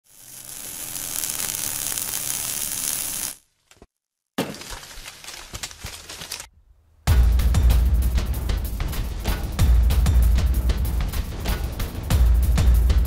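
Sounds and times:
crackling with sharp clicks: 0.1 - 3.4.

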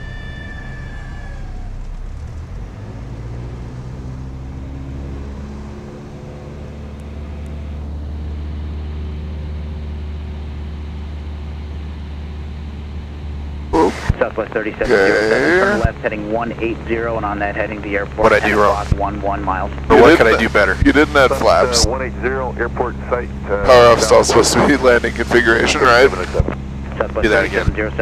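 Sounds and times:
airplane engine and propeller drone: 0.0 - 28.0.

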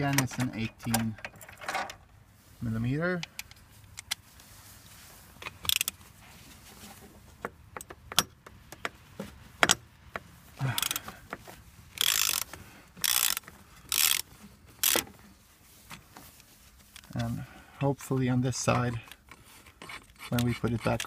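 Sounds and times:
ratchet pawl clicking: 10.8 - 11.0, 12.0 - 15.0.

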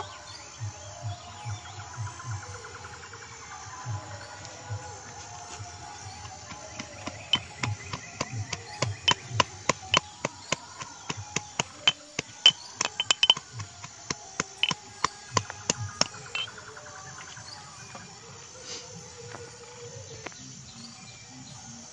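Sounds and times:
metal pestle pounding in mortar: 6.8 - 13.8, 14.4 - 16.5.

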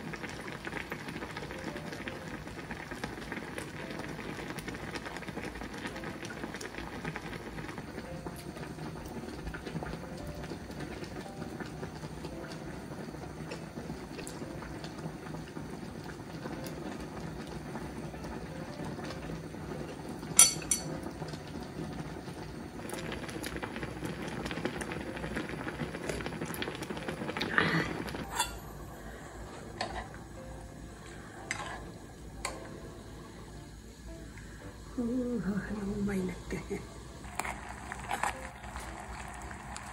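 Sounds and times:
broth bubbling in a pot: 0.0 - 39.9
metal tongs clattering: 20.4 - 20.9
tableware clinking: 20.4 - 21.0, 28.2 - 28.7.

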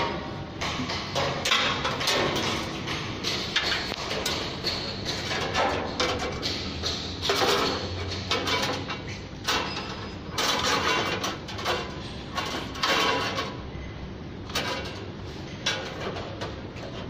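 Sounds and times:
metal scraping and rattling: 1.1 - 13.6.

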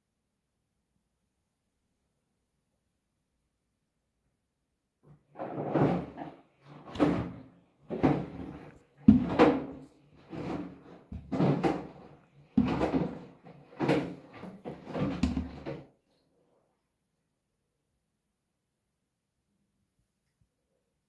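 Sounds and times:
washing machine drum sloshing thumps: 5.4 - 15.8.

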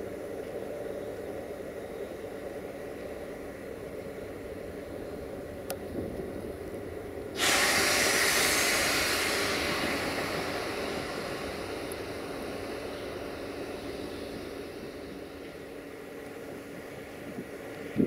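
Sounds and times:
electric locomotive humming: 0.0 - 18.0
compressed air hissing: 7.4 - 17.6.

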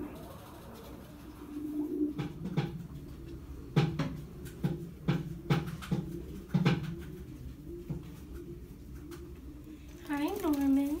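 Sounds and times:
faint hum: 0.0 - 11.0
irregular knocks: 2.1 - 3.0, 3.7 - 7.0.

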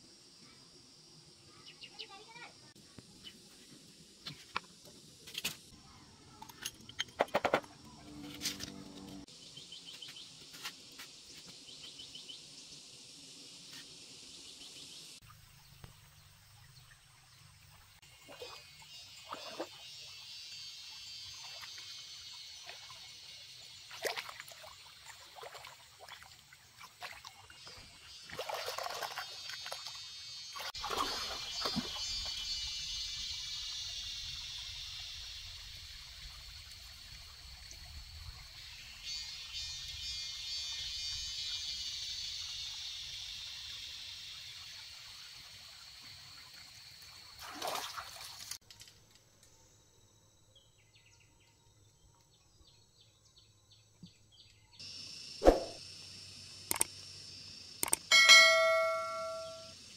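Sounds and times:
water splashing from wading: 23.9 - 27.6, 28.2 - 30.0, 30.6 - 32.0, 47.3 - 48.6
high-pitched insect buzz: 27.6 - 35.6, 38.8 - 44.9.

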